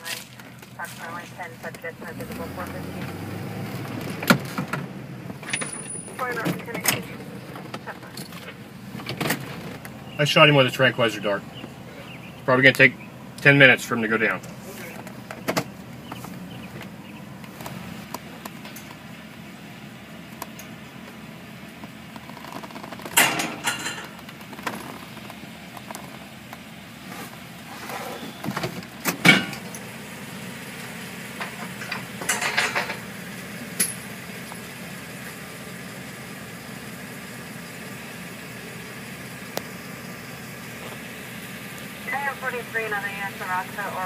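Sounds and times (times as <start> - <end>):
vehicle engine idling: 0.0 - 44.0.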